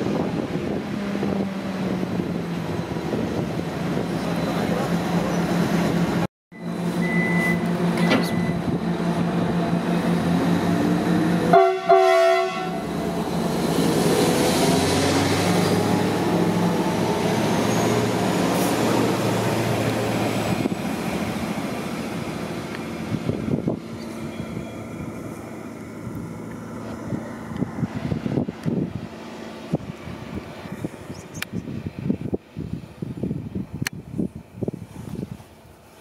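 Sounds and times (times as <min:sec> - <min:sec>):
diesel railcar engine humming: 0:00.0 - 0:36.0
moving train rumble: 0:00.0 - 0:36.0
train horn blast: 0:11.4 - 0:12.9.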